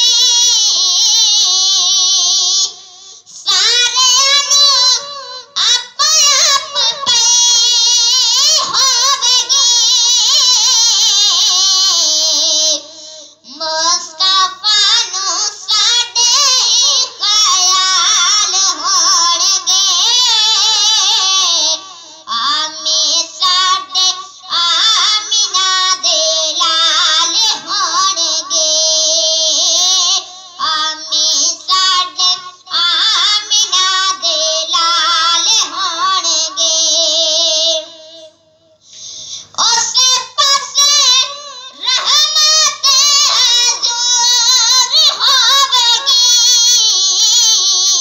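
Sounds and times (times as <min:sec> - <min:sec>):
boy singing into microphone: 0:00.0 - 0:48.0.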